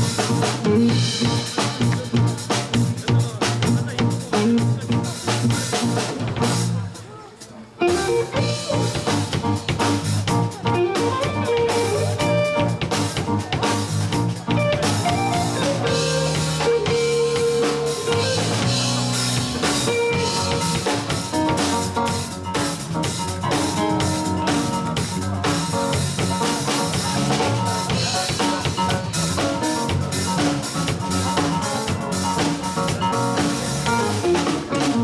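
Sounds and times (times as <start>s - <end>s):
drum hits: 0.0s - 6.8s
live funk band playing: 0.0s - 35.0s.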